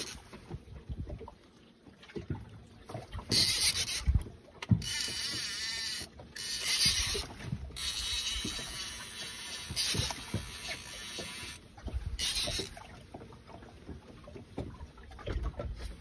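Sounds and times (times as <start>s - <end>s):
fishing reel whirring: 0.0s - 0.3s, 3.3s - 11.6s, 12.2s - 12.8s
water sloshing against boat: 0.0s - 16.0s.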